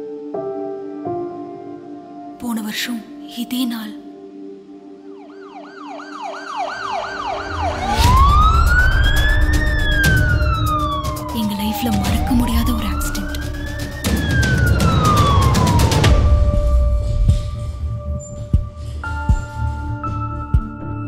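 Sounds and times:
ambulance siren: 4.4 - 18.1.

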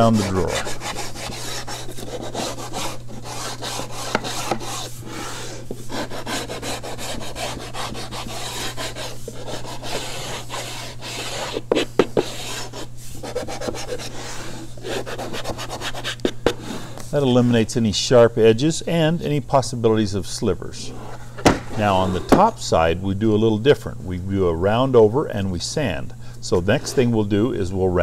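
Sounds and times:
sanding block rubbing wood: 0.0 - 16.7
steady low hum: 0.0 - 28.0.

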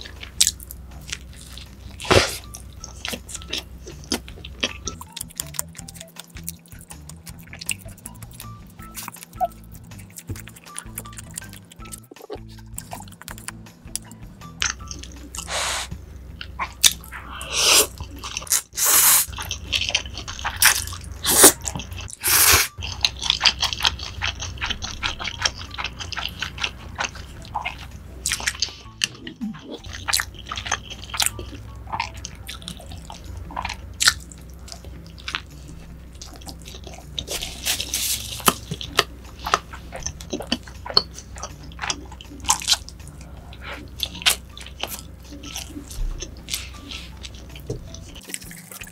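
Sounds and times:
chewing with mouth smacks: 0.0 - 48.9
slurping noodles: 2.0 - 2.5, 15.4 - 15.9, 17.3 - 19.7, 20.4 - 22.8.

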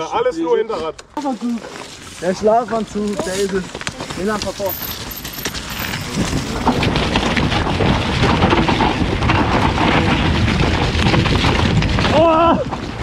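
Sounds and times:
bike rattling: 1.2 - 13.0
tyres knocking through dirt: 3.2 - 13.0
wind noise on microphone: 4.1 - 13.0.

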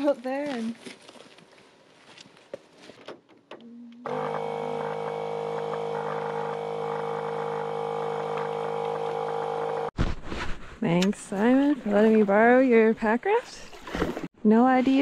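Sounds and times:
electric air pump humming: 3.7 - 10.0.

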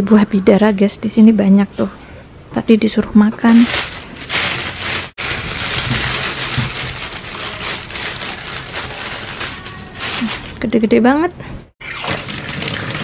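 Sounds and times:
plastic bag crinkling: 3.5 - 10.9.

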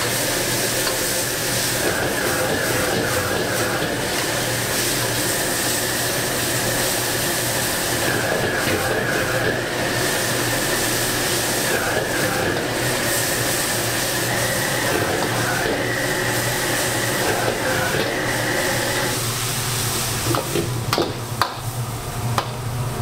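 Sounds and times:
gas burner roaring: 0.0 - 23.0
meat sizzling in a wok: 0.0 - 23.0.

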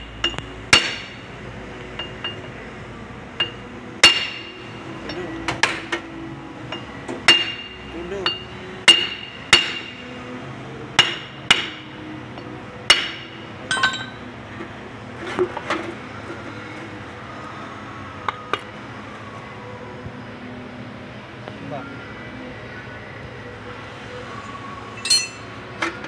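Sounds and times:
hammer striking metal: 0.0 - 1.2, 3.4 - 6.0, 6.7 - 10.0, 11.0 - 11.8, 12.9 - 14.2, 25.0 - 25.5
metallic clinks and knocks: 13.7 - 14.2, 25.0 - 25.5.

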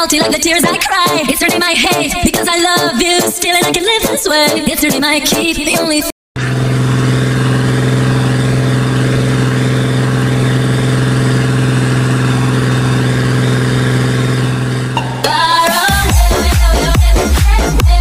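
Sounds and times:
tractor diesel engine running: 6.4 - 16.7.

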